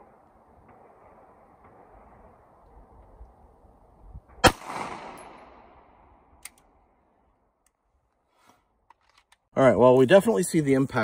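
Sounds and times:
pistol shot with echo: 0:04.4 - 0:05.7.

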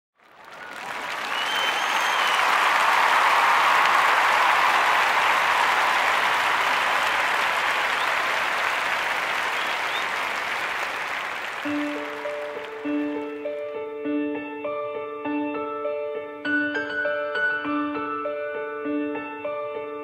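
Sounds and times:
audience applauding: 0:00.2 - 0:13.8.

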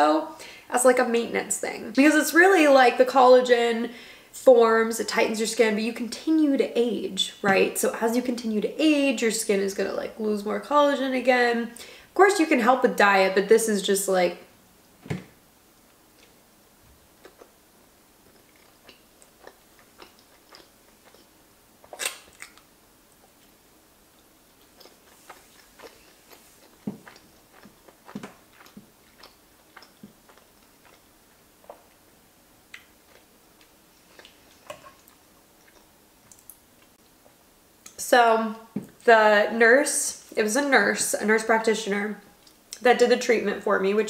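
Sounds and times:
chewing with wet mouth clicks: 0:17.2 - 0:17.6, 0:18.2 - 0:23.5, 0:24.2 - 0:32.0, 0:32.7 - 0:38.0.

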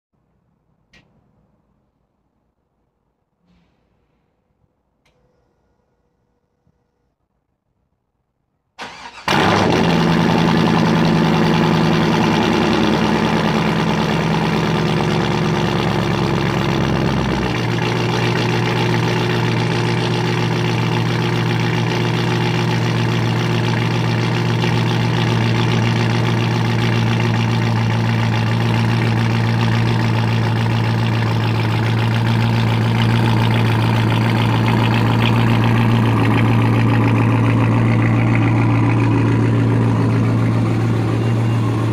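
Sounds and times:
car engine cold starting: 0:08.8 - 0:41.9
car engine idling: 0:08.8 - 0:41.9.

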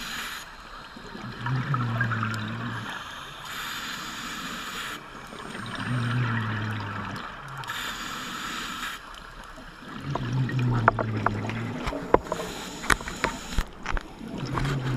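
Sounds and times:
hissing inhale through regulator: 0:00.0 - 0:00.8, 0:02.8 - 0:06.2, 0:07.6 - 0:09.2, 0:12.2 - 0:13.8
buzzing exhale of bubbles: 0:01.1 - 0:03.2, 0:05.1 - 0:08.8, 0:09.8 - 0:14.9.

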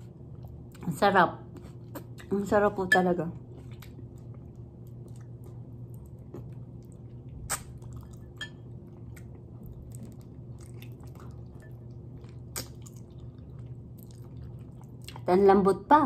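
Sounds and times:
low steady hum: 0:00.0 - 0:16.0
chewing and gnawing: 0:03.4 - 0:15.3.

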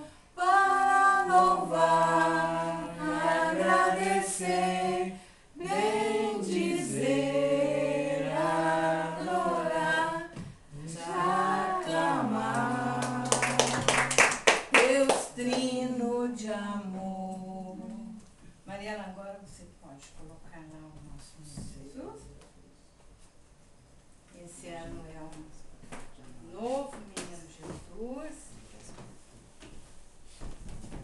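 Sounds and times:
group singing a hymn: 0:00.4 - 0:14.2
hand claps: 0:12.5 - 0:15.8.

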